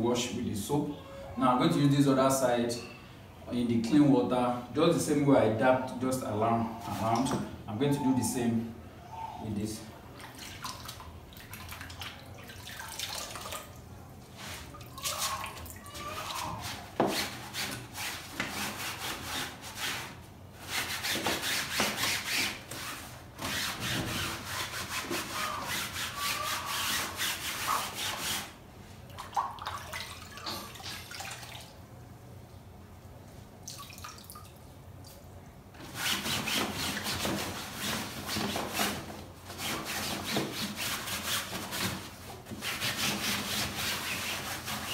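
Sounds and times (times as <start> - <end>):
water dripping: 10.2 - 13.9, 29.1 - 31.8, 33.6 - 35.2
wet cloth wrung over water: 10.2 - 16.6, 29.1 - 31.8
cloth scrubbing fabric: 14.3 - 28.6, 35.8 - 44.9.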